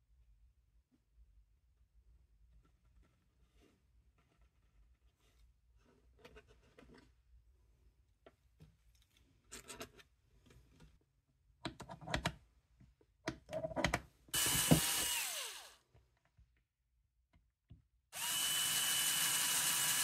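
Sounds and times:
tools and wood clicking: 0:13.2 - 0:15.3
cordless drill whining: 0:14.4 - 0:15.8, 0:18.2 - 0:20.0.

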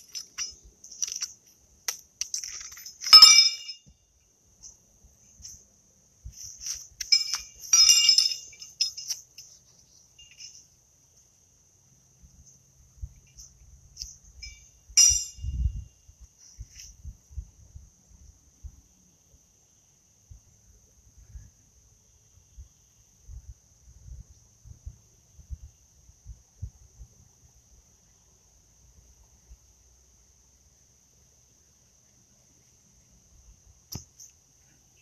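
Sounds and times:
horseshoes clanking together: 0:00.0 - 0:03.9, 0:06.5 - 0:09.5, 0:14.0 - 0:15.5
crickets chirping: 0:00.0 - 0:35.0.

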